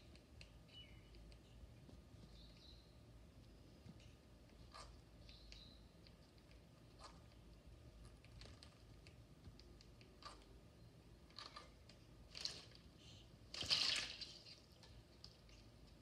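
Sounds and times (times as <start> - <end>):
parrot splashing in water: 13.5 - 14.6.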